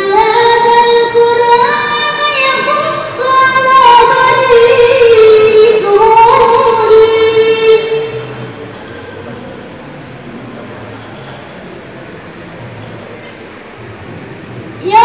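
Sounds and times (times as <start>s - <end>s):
girl reciting melodically over loudspeaker: 0.0s - 8.5s, 14.8s - 15.0s.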